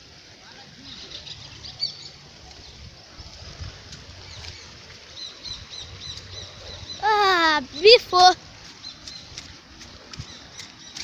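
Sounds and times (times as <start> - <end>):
songbird chirping: 0.4 - 11.0
wind rumble on microphone: 2.4 - 7.0.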